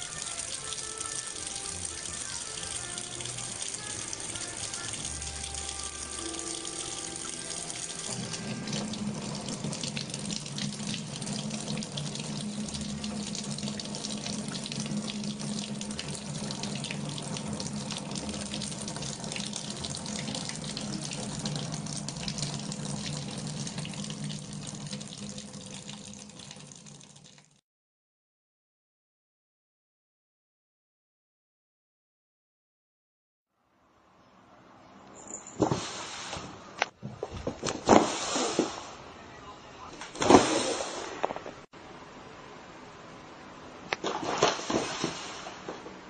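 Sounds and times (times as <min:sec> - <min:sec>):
cat drinking from stream: 0:00.0 - 0:27.5.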